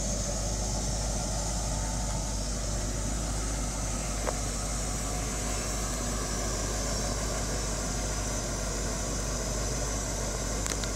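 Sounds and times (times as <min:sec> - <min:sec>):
car engine idling: 0:00.0 - 0:10.9
small click: 0:10.6 - 0:10.9.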